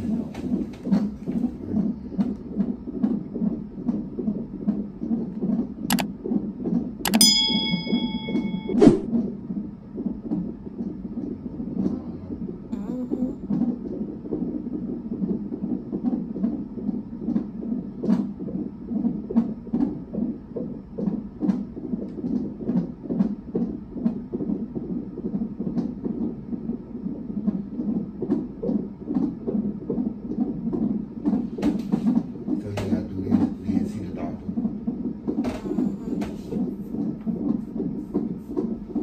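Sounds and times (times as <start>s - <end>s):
fetal heartbeat pulse: 0.0s - 39.0s
sharp clicks: 7.1s - 7.3s.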